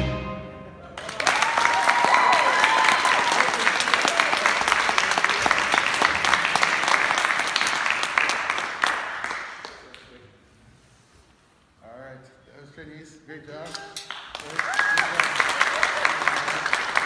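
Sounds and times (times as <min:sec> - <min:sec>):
audience applauding: 0:00.9 - 0:10.0, 0:14.1 - 0:17.0
person cheering: 0:01.0 - 0:03.6, 0:14.6 - 0:16.3.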